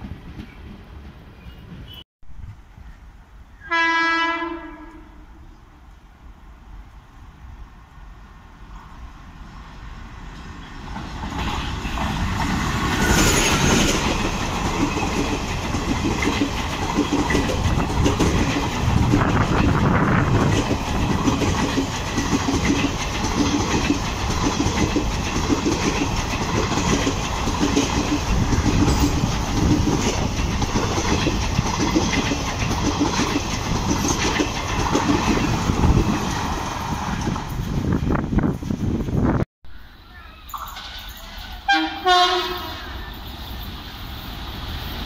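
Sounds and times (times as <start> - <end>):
train passing at speed: 0.0 - 45.0
train wheels clattering over rail joints: 10.9 - 37.8.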